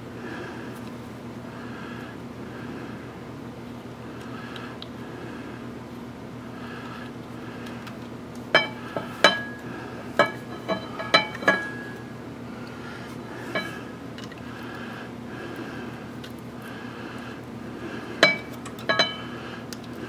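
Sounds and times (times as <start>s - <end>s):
low hum: 7.9s - 20.0s.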